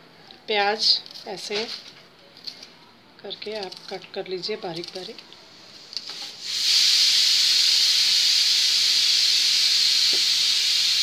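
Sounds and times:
pressure cooker whistling steam: 6.1s - 11.0s.

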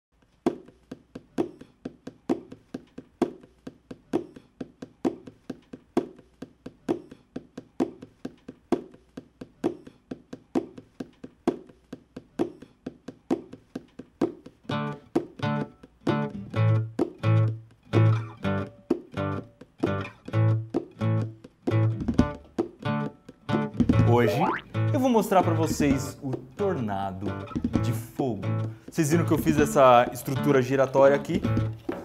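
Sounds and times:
picked plucked notes: 14.7s - 32.0s
chords with bass line: 23.8s - 25.0s.

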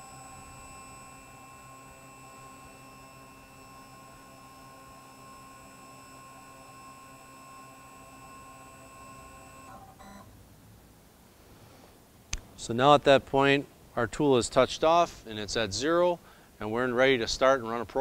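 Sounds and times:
machine drive whine: 0.0s - 10.4s.

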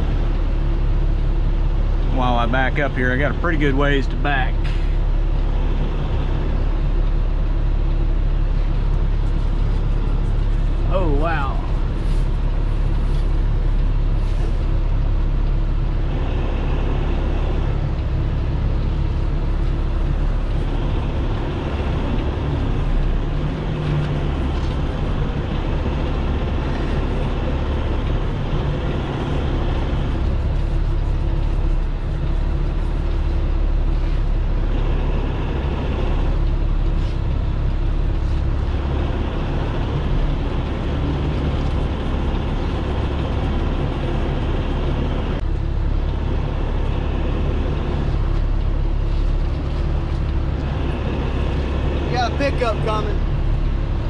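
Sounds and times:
diesel truck engine droning: 0.0s - 54.0s.

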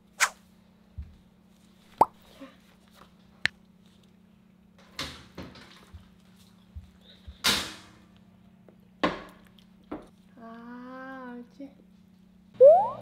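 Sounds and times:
faint steady hum: 5.9s - 13.0s.

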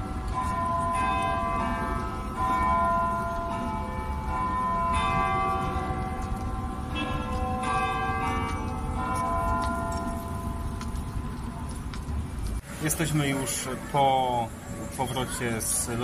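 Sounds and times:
clock tower bells chiming: 0.0s - 11.6s.

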